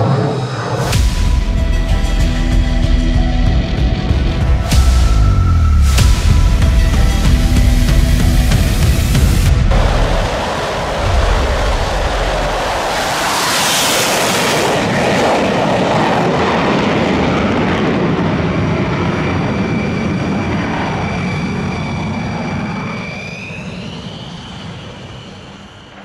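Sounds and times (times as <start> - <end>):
jet engine rushing blast: 0.0 - 26.0
jet engine whine: 0.0 - 26.0.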